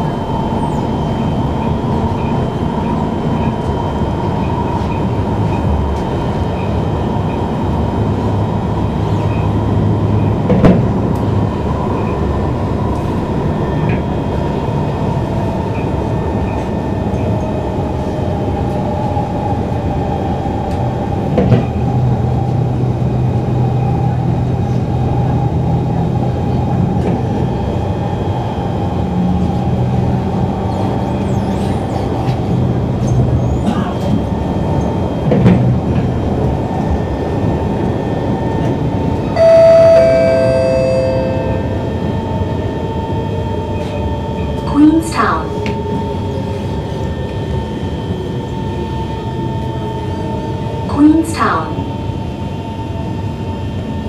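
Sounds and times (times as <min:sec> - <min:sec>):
train wheels rumbling on rail: 0:00.0 - 0:50.9.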